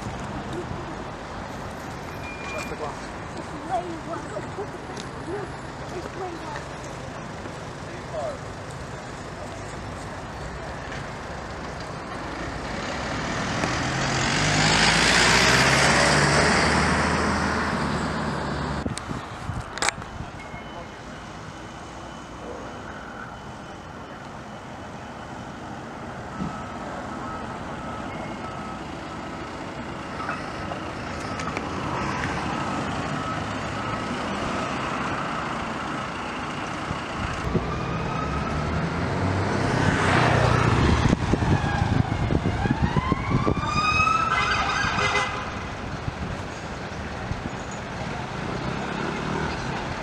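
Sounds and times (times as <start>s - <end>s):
heavy vehicle engine passing: 0.0s - 19.5s, 20.8s - 50.0s
siren wailing: 37.2s - 38.9s, 40.2s - 45.3s.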